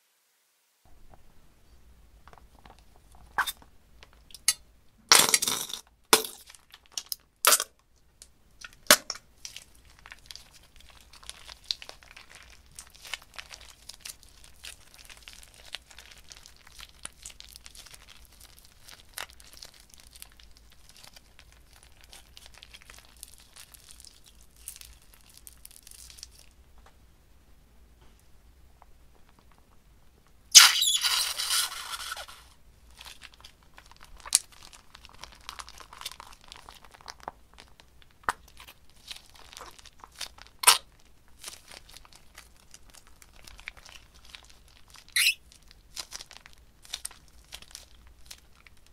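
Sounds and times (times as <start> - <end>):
gel crackles and clicks: 5.8 - 27.0, 32.2 - 48.9
plastic bag crinkling: 8.6 - 26.6, 30.8 - 48.9.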